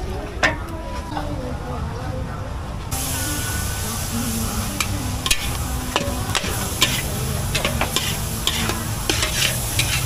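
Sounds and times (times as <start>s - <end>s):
frying sizzle: 3.0s - 10.0s
spatula scraping a wok: 4.8s - 10.0s.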